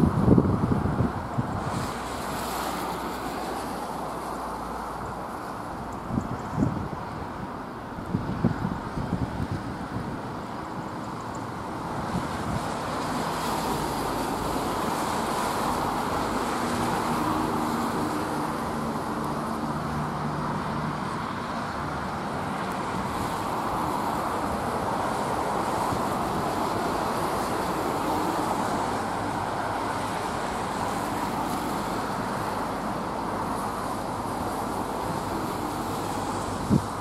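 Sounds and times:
traffic on wet roads: 0.0 - 37.0.

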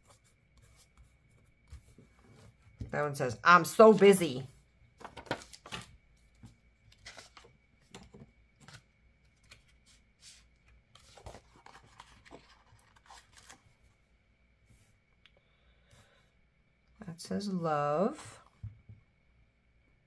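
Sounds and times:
paper rustling and crinkling: 5.0 - 13.8.

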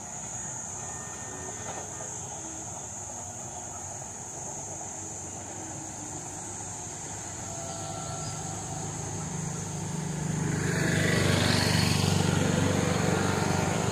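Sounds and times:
steady high hiss: 0.0 - 13.9
engine running: 6.2 - 13.9.

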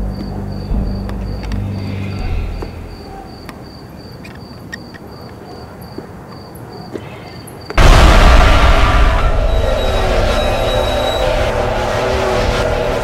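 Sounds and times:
cricket chirping: 0.0 - 7.8
harsh horror sound effect: 7.8 - 13.0.

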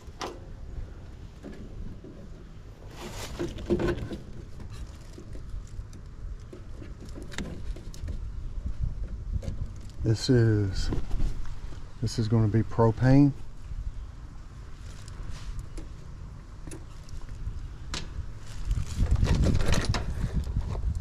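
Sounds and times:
hands handling wiring and tubing: 0.0 - 11.8, 14.6 - 21.0.

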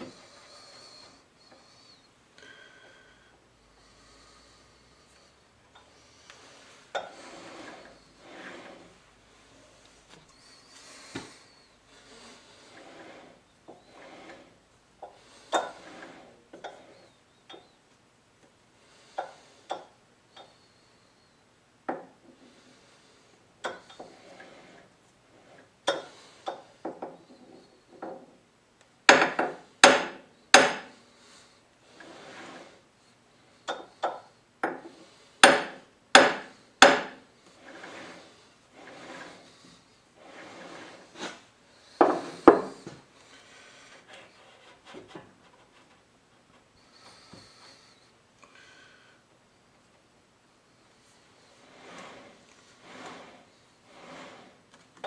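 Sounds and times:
soft rubbing of lathe chuck: 3.8 - 17.8, 21.9 - 28.4, 31.2 - 32.9, 36.4 - 48.0, 50.7 - 55.0.

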